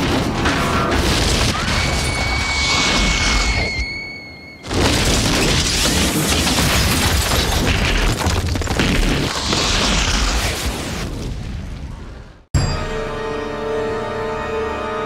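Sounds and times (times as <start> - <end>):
rumble of wind and debris: 4.6 - 12.5
high ringing tone: 12.6 - 13.3.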